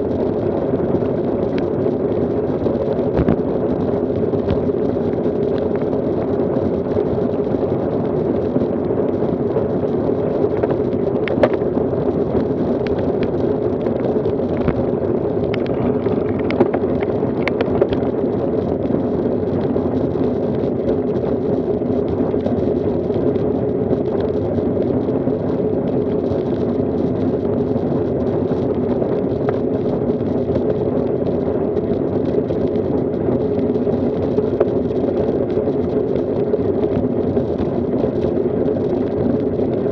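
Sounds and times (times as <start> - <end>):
road rumble: 0.0 - 39.7
wind buffeting: 12.8 - 18.1.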